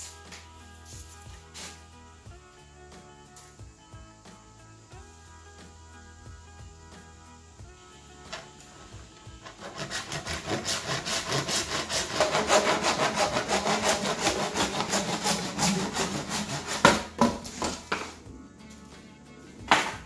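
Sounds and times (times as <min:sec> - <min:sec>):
handsaw cutting plastic pipe: 0:00.0 - 0:02.0, 0:08.2 - 0:18.2.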